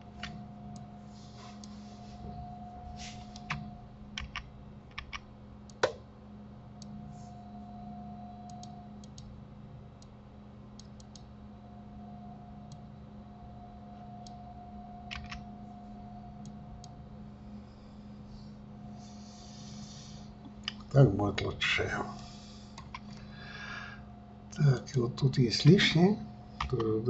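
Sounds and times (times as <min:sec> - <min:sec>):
steady low hum: 0:00.0 - 0:27.0
keyboard and mouse clicks: 0:03.3 - 0:06.0, 0:10.8 - 0:11.3, 0:15.1 - 0:15.4, 0:22.8 - 0:23.1.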